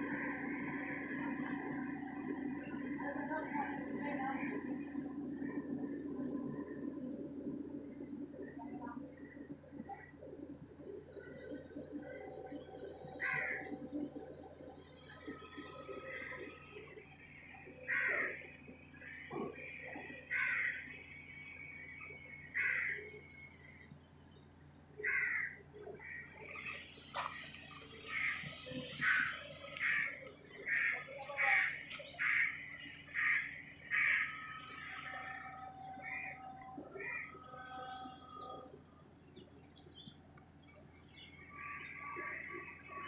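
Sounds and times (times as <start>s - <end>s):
faint engine idling hum: 0.0s - 43.0s
outdoor background noise: 0.0s - 43.0s
crow cawing: 13.2s - 13.8s, 17.8s - 21.0s, 22.5s - 23.2s, 25.0s - 26.6s, 28.0s - 38.1s.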